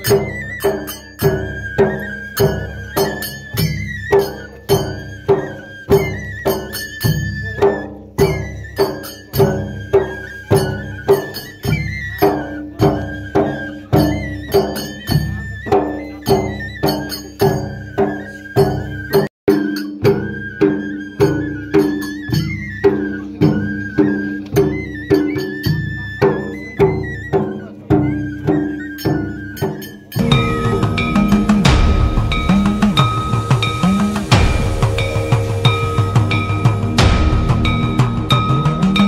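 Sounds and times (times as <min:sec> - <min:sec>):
steady drum beat: 0:30.0 - 0:39.0
high melodic line: 0:30.1 - 0:39.0.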